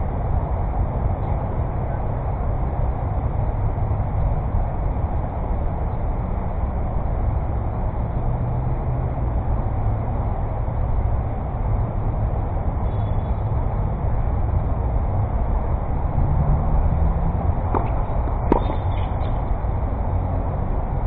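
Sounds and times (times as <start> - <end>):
low rumbling noise: 9.2 - 21.0.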